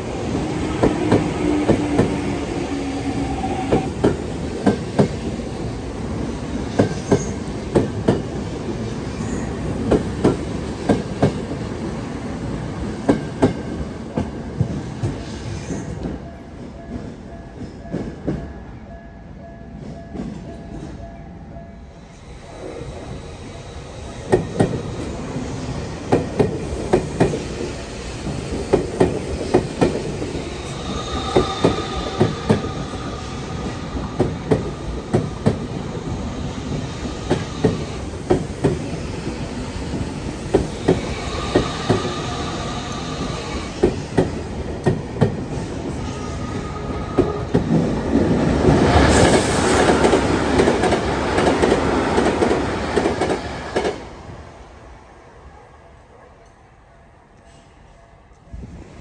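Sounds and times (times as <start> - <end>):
train wheels clicking over rail joints: 24.2 - 25.4, 26.0 - 46.0.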